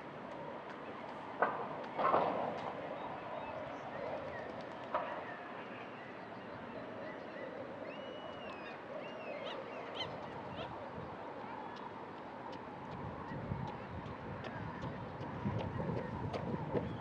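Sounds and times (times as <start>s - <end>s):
whistled bird glides: 5.2s - 10.8s.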